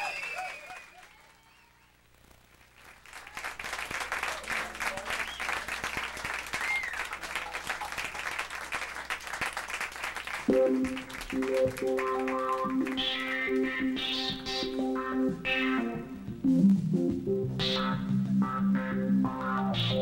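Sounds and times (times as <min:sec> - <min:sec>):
audience applauding: 0:00.0 - 0:01.9, 0:02.5 - 0:14.4
voices over clapping: 0:02.8 - 0:13.9.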